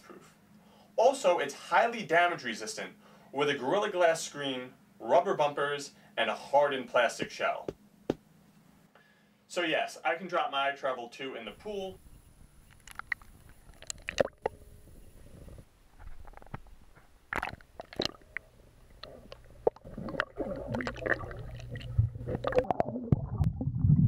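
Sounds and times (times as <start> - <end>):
water splashing and gurgling: 12.9 - 14.6, 17.3 - 24.0.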